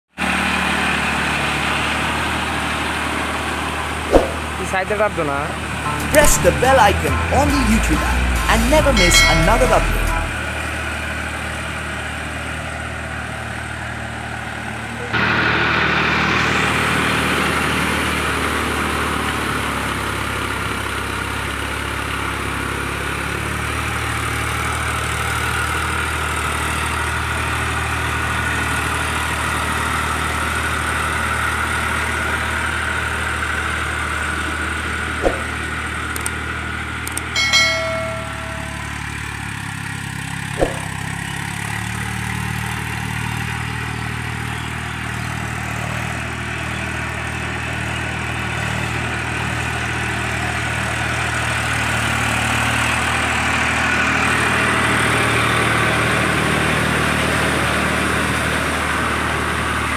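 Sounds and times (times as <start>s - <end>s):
short electronic chime: 5.9s - 10.6s, 37.2s - 39.3s.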